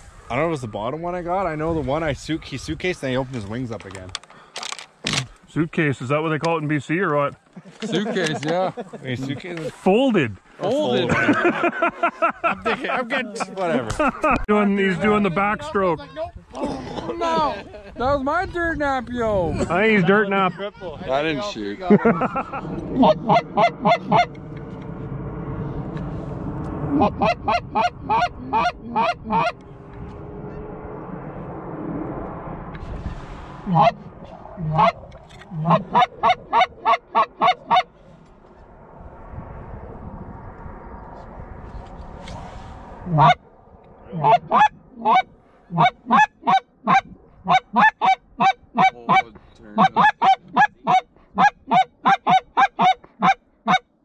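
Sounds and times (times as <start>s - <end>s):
goose honks: 27.0s - 29.6s, 33.7s - 34.0s, 34.6s - 37.9s, 43.1s - 43.4s, 44.1s - 49.2s, 49.8s - 53.8s.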